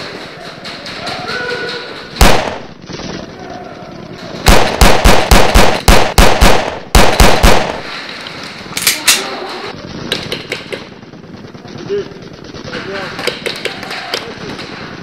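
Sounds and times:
pistol gunshots: 0:02.2 - 0:03.3, 0:04.4 - 0:07.9.

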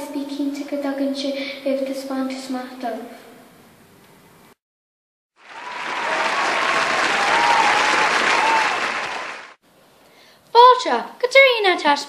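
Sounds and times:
crowd applauding: 0:05.4 - 0:09.6.

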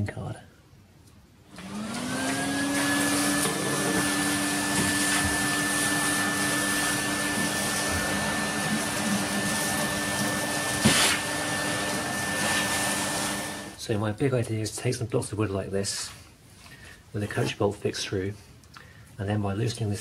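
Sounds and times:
vacuum cleaner whine: 0:01.5 - 0:13.8.

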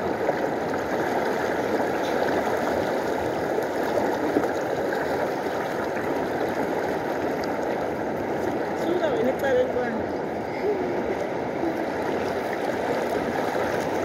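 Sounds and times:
river rushing: 0:00.0 - 0:14.0
splashes from wading: 0:10.7 - 0:14.0.

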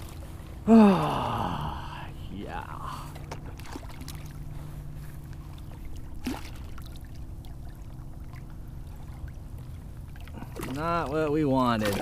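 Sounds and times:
water splashing: 0:02.4 - 0:12.0.

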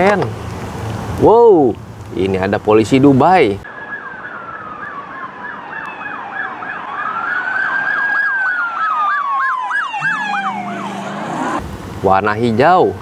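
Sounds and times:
police siren slow wail: 0:03.6 - 0:11.6
police siren rapid yelp: 0:03.7 - 0:11.6.

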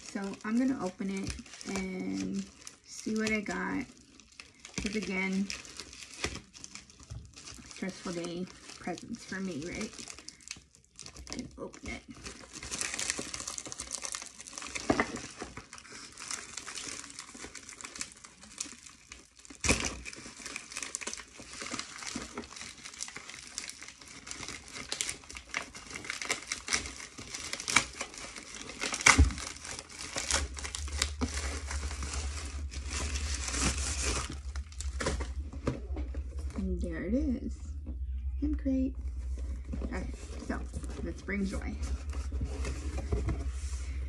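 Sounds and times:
bubble mailer crinkling: 0:00.0 - 0:44.0
low rumble: 0:20.1 - 0:44.0.

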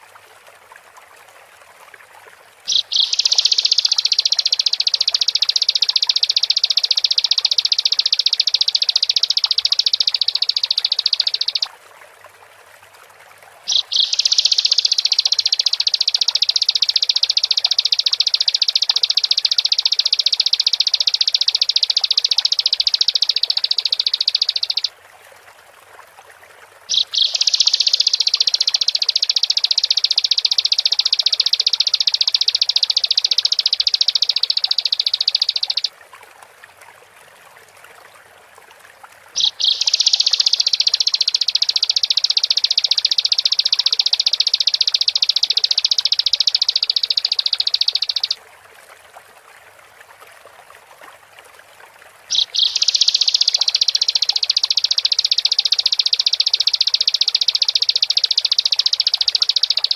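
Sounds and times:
bird chattering song: 0:02.7 - 0:11.7, 0:13.7 - 0:24.9, 0:26.9 - 0:35.9, 0:39.4 - 0:48.4, 0:52.3 - 0:59.9.

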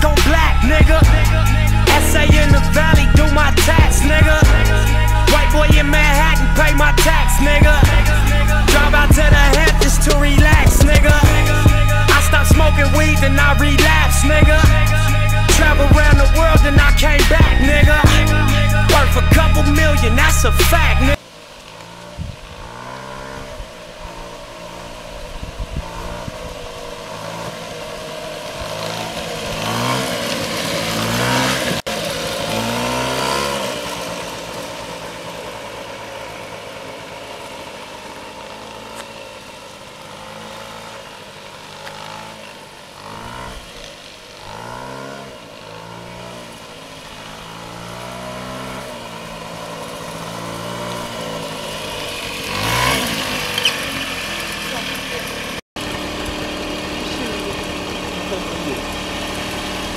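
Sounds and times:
moped engine revving: 0:00.0 - 0:59.9.

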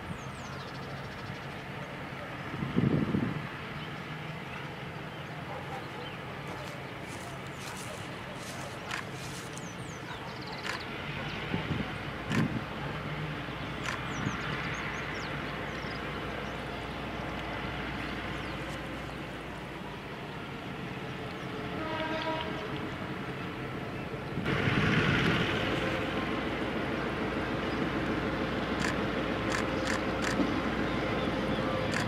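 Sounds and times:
diesel locomotive running: 0:00.0 - 0:32.0
locomotive horn blast: 0:21.7 - 0:22.8.

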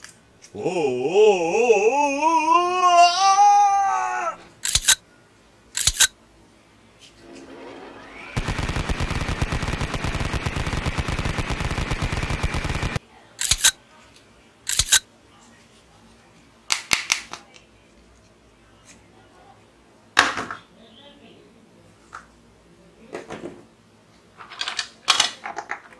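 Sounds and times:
toy robot clicks: 0:04.6 - 0:05.0, 0:05.8 - 0:06.1, 0:13.4 - 0:13.8, 0:14.7 - 0:15.0
warbling tone: 0:07.2 - 0:13.0.

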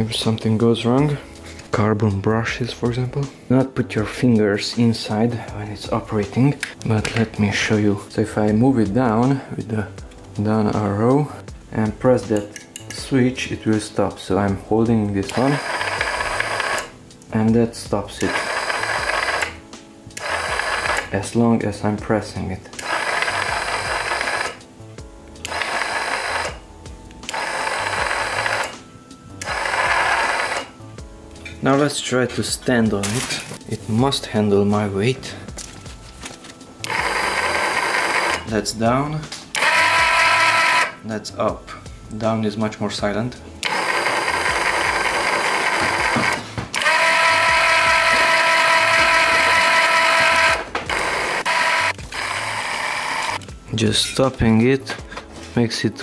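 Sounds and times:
electric jack motor whirring: 0:15.3 - 0:16.9, 0:18.2 - 0:19.6, 0:20.2 - 0:21.1, 0:22.8 - 0:24.6, 0:25.4 - 0:26.6, 0:27.3 - 0:28.8, 0:29.4 - 0:30.7, 0:36.8 - 0:38.5, 0:39.5 - 0:41.0, 0:43.6 - 0:53.5.

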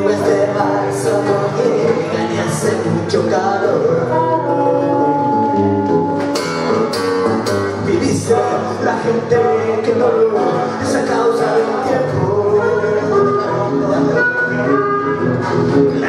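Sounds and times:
acoustic guitar strumming: 0:00.0 - 0:16.0
man singing: 0:00.0 - 0:16.0
blues harmonica: 0:12.4 - 0:16.0.

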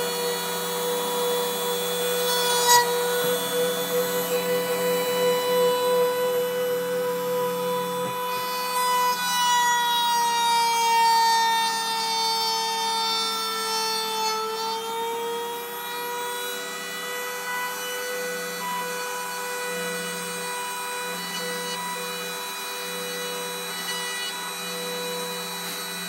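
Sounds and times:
low buzz: 0:00.0 - 0:09.7
rotary tool whining: 0:00.0 - 0:26.0.

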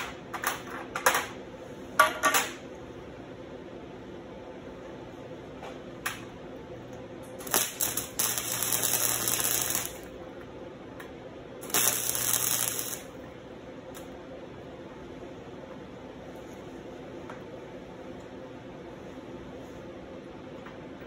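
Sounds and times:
crackling welding arc: 0:07.3 - 0:10.2, 0:11.6 - 0:13.2.

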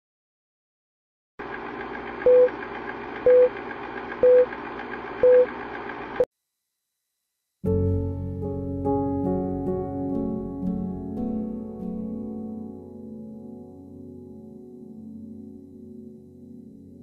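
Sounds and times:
film projector whirring: 0:01.4 - 0:06.3
short beeps: 0:03.3 - 0:03.5, 0:04.2 - 0:04.5, 0:05.2 - 0:05.5.

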